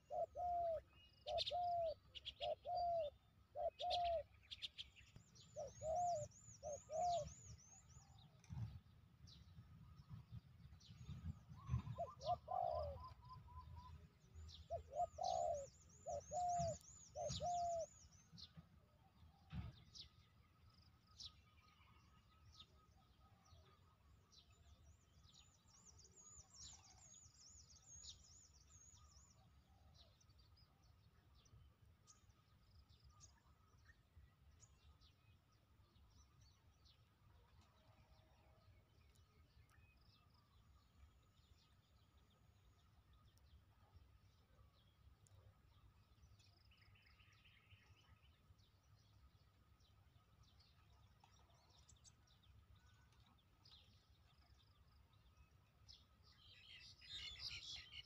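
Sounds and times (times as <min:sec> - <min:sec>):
dove cooing: 0:00.0 - 0:04.3, 0:05.6 - 0:07.4, 0:11.8 - 0:13.5, 0:14.7 - 0:17.9
small birds chirping: 0:00.0 - 0:18.6, 0:24.4 - 0:58.0.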